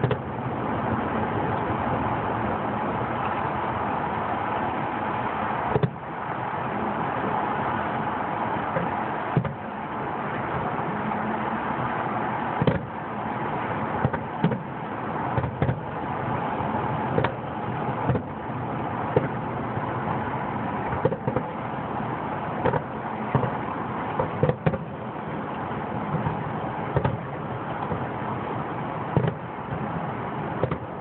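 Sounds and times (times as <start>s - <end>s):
steady background rush: 0.0s - 31.0s
distant fireworks bursting: 20.6s - 31.0s.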